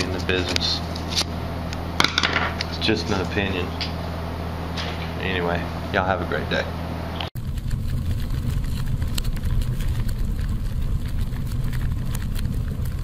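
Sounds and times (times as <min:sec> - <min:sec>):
low steady rumble: 0:00.0 - 0:13.0
scattered crackles: 0:07.4 - 0:13.0.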